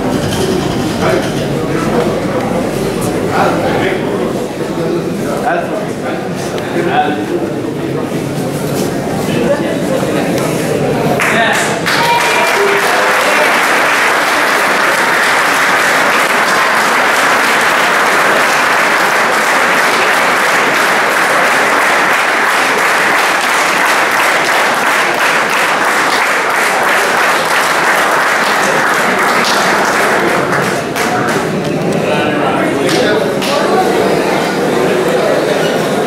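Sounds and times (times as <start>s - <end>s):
audience applauding: 11.2s - 31.7s.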